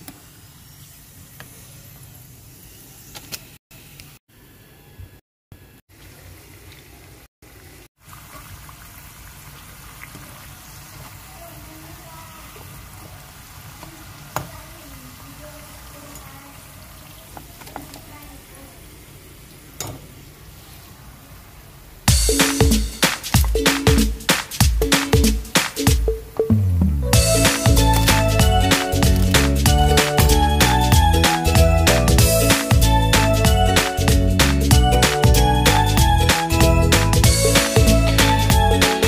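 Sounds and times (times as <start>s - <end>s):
food deep-frying in hot oil: 0.0s - 3.6s, 5.9s - 22.1s
loud music: 22.1s - 39.0s.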